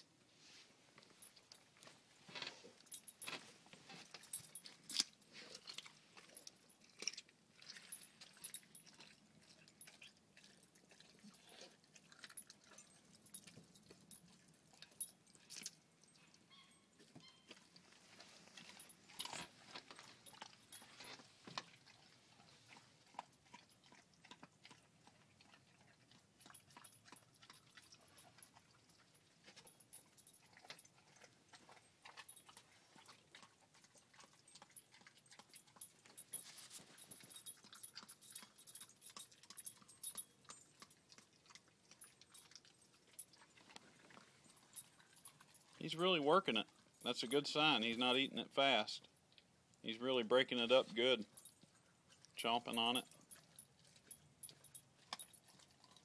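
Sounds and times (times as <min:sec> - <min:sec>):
dog crunching bone: 0:01.8 - 0:16.2, 0:17.0 - 0:45.8.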